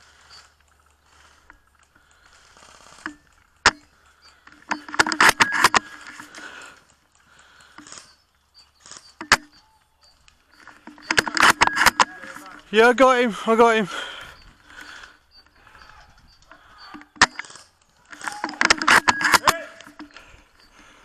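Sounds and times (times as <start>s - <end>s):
rifle bolt rattling: 2.9s - 6.5s, 10.5s - 12.8s, 16.1s - 20.3s.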